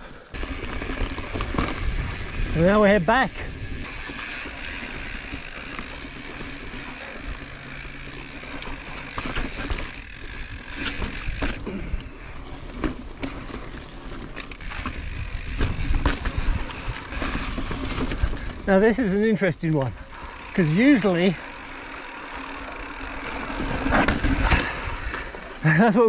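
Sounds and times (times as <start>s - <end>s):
bike tyre noise on rock: 0.0s - 26.0s
bike hub ratchet clicking: 0.3s - 11.7s, 14.6s - 18.4s, 20.0s - 25.5s
bike knocks and rattles: 0.4s - 2.9s, 3.7s - 18.7s, 20.1s - 25.6s.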